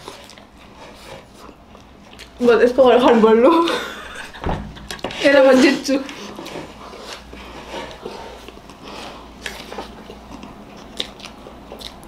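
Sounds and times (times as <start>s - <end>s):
soft wet eating smacks: 9.4s - 12.0s.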